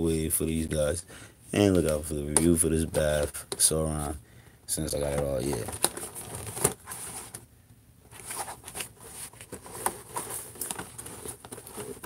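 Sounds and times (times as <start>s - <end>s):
cardboard boxes being handled: 5.0s - 7.5s, 8.1s - 12.0s
plastic crackle: 8.1s - 12.0s.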